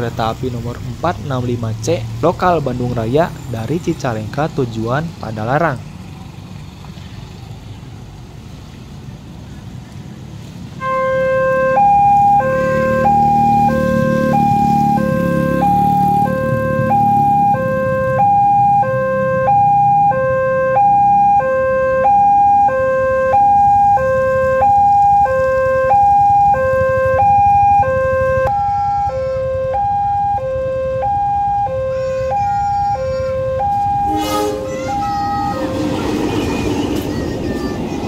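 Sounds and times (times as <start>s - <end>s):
two-note electronic crossing alarm: 10.8s - 35.8s.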